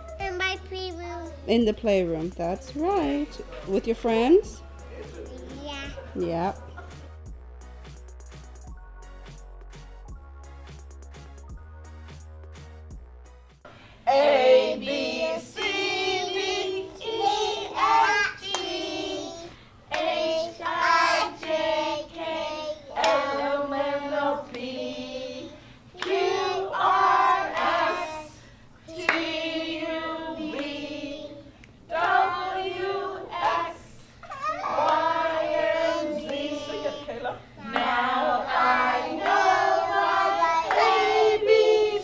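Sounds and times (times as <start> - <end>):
woman and children singing: 14.0 - 42.0
hand clapping: 18.4 - 18.8, 23.0 - 23.2, 26.0 - 26.3, 34.8 - 35.1.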